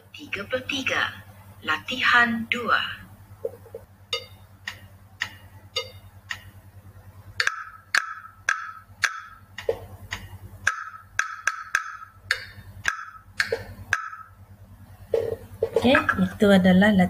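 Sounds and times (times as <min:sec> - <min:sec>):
percussion knocks: 0:03.4 - 0:06.5, 0:07.4 - 0:14.4, 0:15.1 - 0:16.2
light ticks on a beat: 0:04.1 - 0:06.6, 0:07.4 - 0:14.2.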